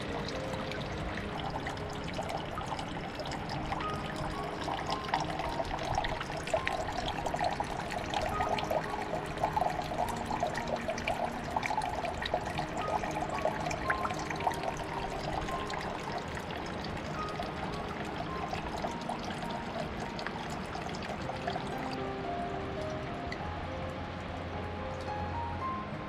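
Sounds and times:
soft background music: 0:00.0 - 0:26.0
water trickling and babbling: 0:00.0 - 0:26.0.

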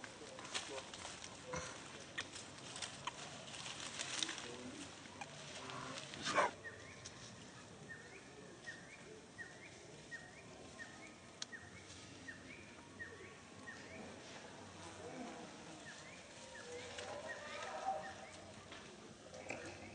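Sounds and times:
dry leaves rustling: 0:00.0 - 0:07.4, 0:13.6 - 0:19.2.

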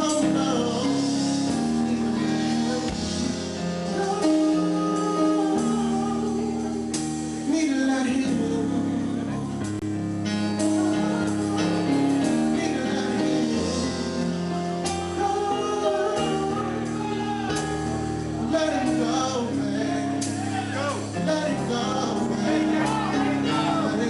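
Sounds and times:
man singing into microphone: 0:00.0 - 0:09.8, 0:10.5 - 0:24.0
band accompaniment: 0:00.0 - 0:24.0.

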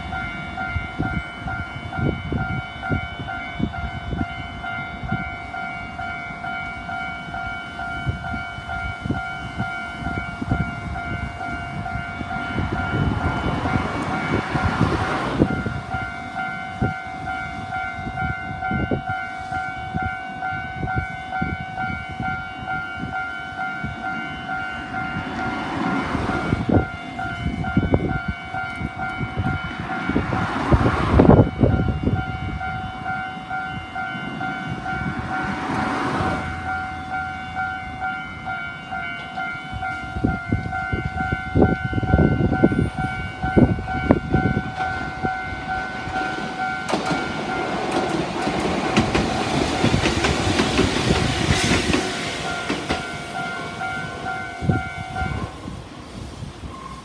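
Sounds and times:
level-crossing warning bell: 0:00.0 - 0:57.0
train wheels rumbling on rails: 0:00.0 - 0:57.0
rushing swells of noise: 0:09.1 - 0:18.6, 0:40.0 - 0:57.0.

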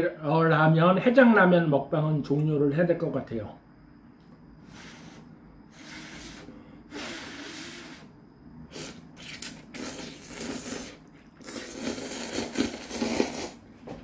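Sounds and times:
person slurping noodles: 0:05.8 - 0:08.1, 0:08.7 - 0:13.6.

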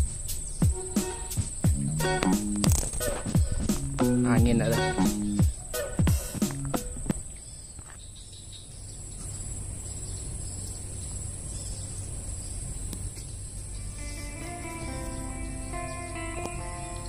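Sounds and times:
insect chorus drone: 0:00.0 - 0:17.0
soft plucked-string music: 0:00.7 - 0:02.9, 0:03.8 - 0:05.4, 0:13.9 - 0:17.0.

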